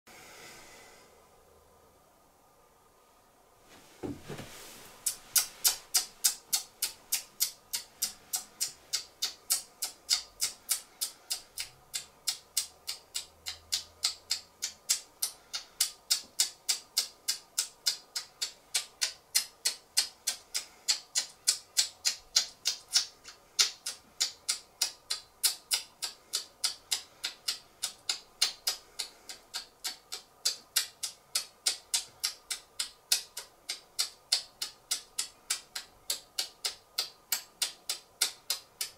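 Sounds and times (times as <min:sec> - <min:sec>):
short thump: 0:04.0 - 0:04.6.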